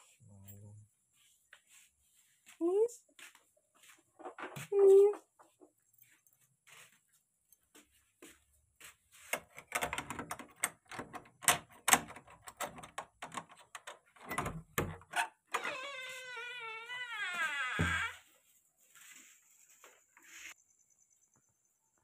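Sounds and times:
quick clicks and clattering knocks: 0:09.4 - 0:15.1.

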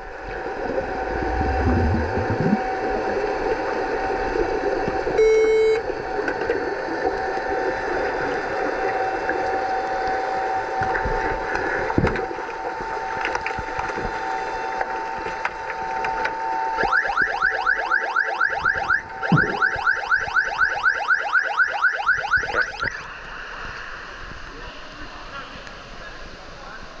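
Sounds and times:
underwater sounder whooping: 0:00.0 - 0:23.0
steady hum: 0:00.0 - 0:27.0
knocks through water: 0:19.2 - 0:19.8.

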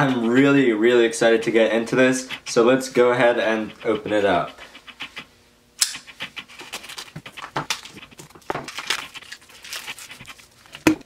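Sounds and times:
sharp click: 0:05.8 - 0:06.1.

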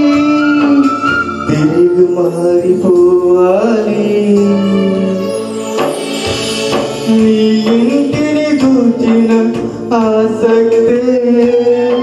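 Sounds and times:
worship song music: 0:00.0 - 0:12.0.

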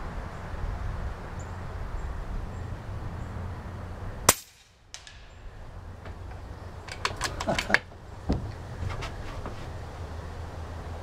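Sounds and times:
air rifle shot crack: 0:04.3 - 0:05.6.

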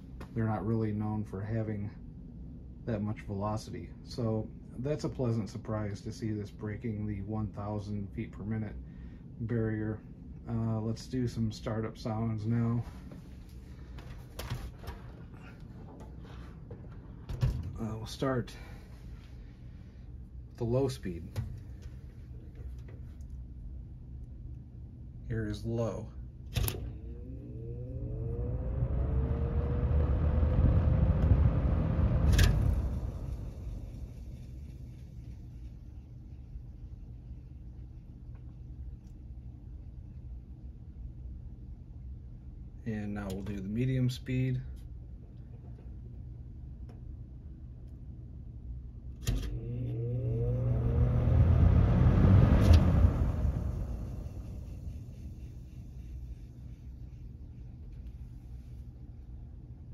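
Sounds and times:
fan motor humming and whining: 0:02.9 - 0:59.9
box fan motor whine: 0:25.4 - 0:40.3, 0:49.0 - 0:59.4
rushing air from fan: 0:26.8 - 0:38.3, 0:49.2 - 0:59.5
rush of moving air: 0:28.1 - 0:34.1.

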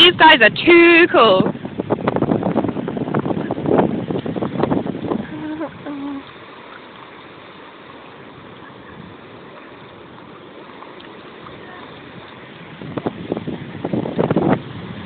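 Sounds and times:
sea surf breaking on beach: 0:00.0 - 0:15.0.

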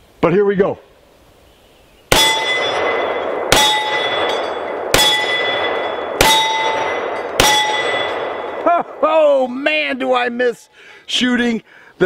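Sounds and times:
steel plate targets ringing: 0:02.1 - 0:08.6
pistol shots: 0:02.1 - 0:08.7.

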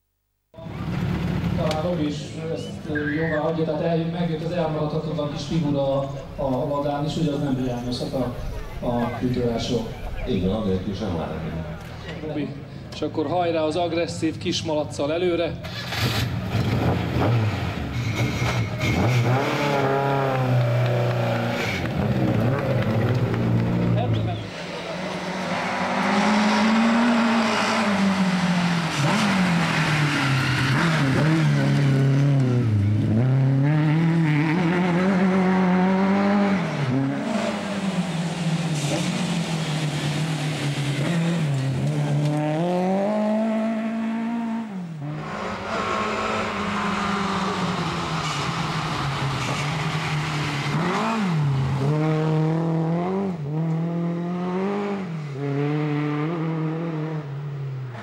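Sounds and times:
rally car engine revving: 0:15.6 - 0:58.0.

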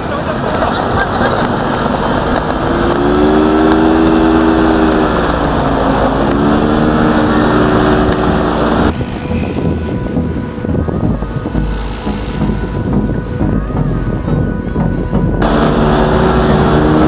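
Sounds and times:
motorcycle engine running hard: 0:00.0 - 0:17.0
loud rushing noise: 0:15.4 - 0:17.0.

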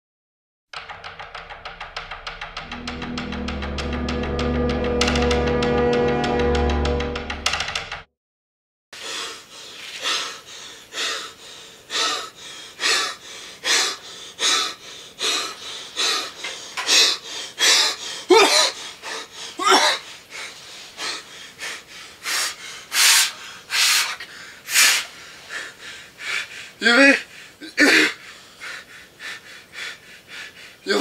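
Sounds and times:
man panting heavily: 0:09.0 - 0:31.0
man groaning: 0:26.8 - 0:28.2.

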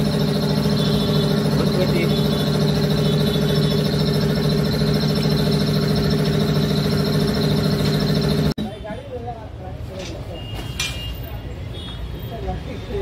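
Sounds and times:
machine motor humming and whining: 0:00.0 - 0:08.6.

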